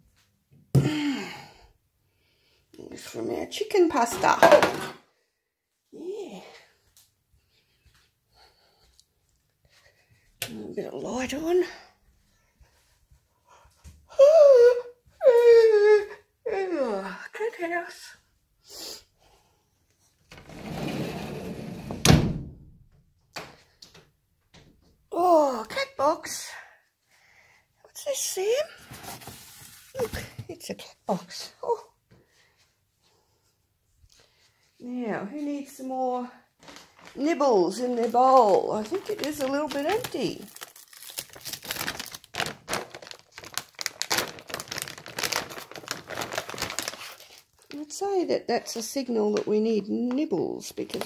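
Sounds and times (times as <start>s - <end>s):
sliding screen door rolling: 20.4s - 22.2s
door banging against frame: 21.9s - 22.8s
crinkling and rustling: 28.1s - 31.5s, 35.3s - 51.0s.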